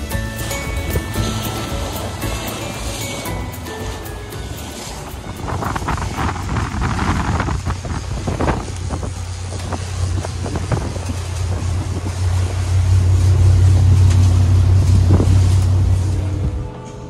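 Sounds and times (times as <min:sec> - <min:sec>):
water rushing past hull: 0:00.0 - 0:16.8
boat engine drone: 0:00.0 - 0:17.0
wind buffeting: 0:04.4 - 0:16.7.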